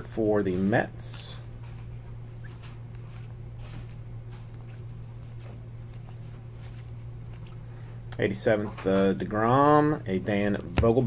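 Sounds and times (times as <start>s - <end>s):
trading cards being shuffled: 1.6s - 7.6s.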